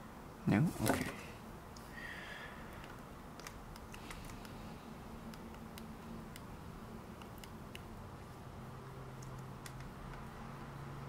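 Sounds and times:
low room hiss: 0.0 - 11.0
faint irregular clicks: 2.7 - 4.6, 7.2 - 7.9, 9.2 - 10.3.

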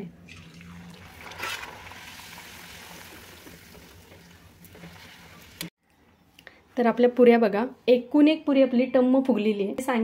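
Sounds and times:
bread sizzling in hot oil: 0.8 - 5.7.

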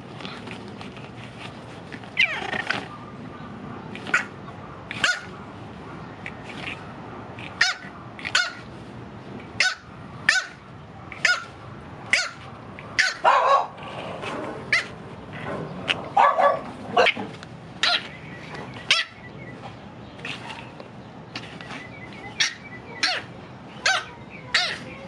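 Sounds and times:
puppy yapping: 2.2 - 2.9, 5.0 - 5.3, 7.6 - 8.6, 9.6 - 10.6, 11.2 - 11.5, 12.1 - 12.4, 13.0 - 13.8, 16.0 - 18.1, 22.4 - 24.8.

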